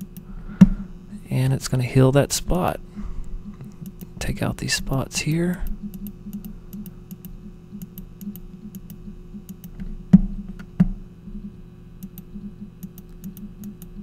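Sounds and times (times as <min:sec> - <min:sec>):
low electrical hum: 0:00.0 - 0:14.0
computer mouse clicks: 0:03.6 - 0:04.1, 0:05.6 - 0:09.9, 0:12.0 - 0:14.0.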